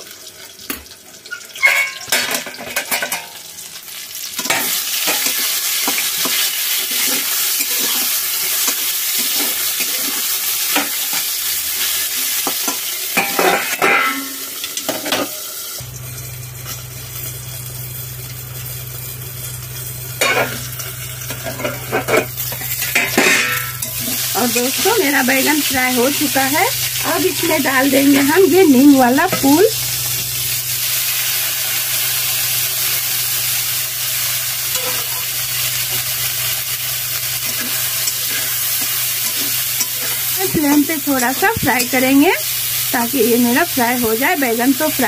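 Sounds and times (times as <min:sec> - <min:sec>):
eggplant sizzling in oil: 0:00.0 - 0:45.0
metal spatula scraping pan: 0:34.7 - 0:36.0, 0:37.2 - 0:42.1.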